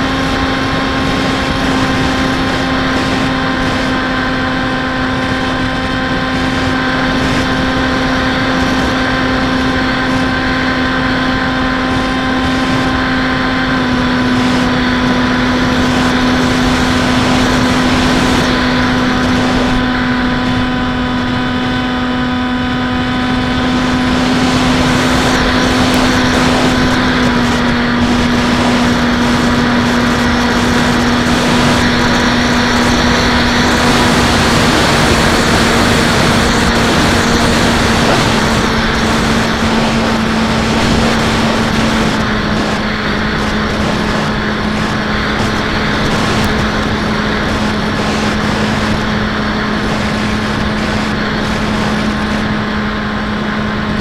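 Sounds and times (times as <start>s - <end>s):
electric motor and propeller hum: 0.0s - 54.0s
wind rushing: 22.9s - 54.0s.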